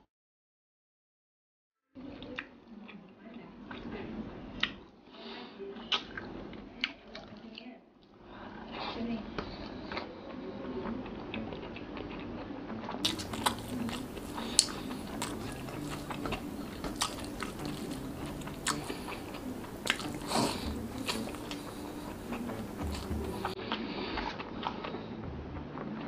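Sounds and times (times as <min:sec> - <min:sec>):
close chewing of food: 0:08.5 - 0:25.2
wet mouth clicks and smacks: 0:13.0 - 0:23.6.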